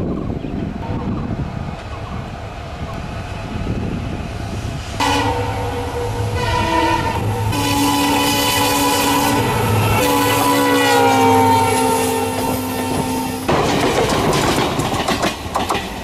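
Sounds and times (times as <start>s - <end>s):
diesel locomotive engine rumbling: 0.0s - 16.0s
train horn blasts: 5.0s - 13.5s.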